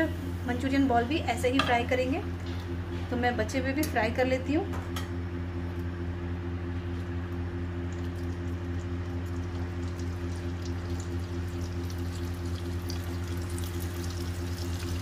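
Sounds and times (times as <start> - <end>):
low hum: 0.0 - 15.0
hot oil sizzling: 8.2 - 15.0.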